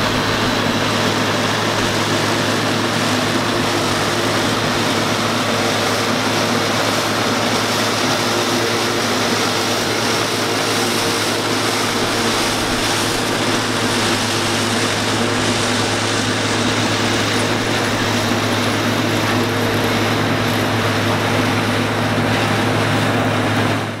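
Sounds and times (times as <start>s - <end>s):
forage harvester rushing noise: 0.0s - 24.0s
tractor engine drone: 0.0s - 24.0s.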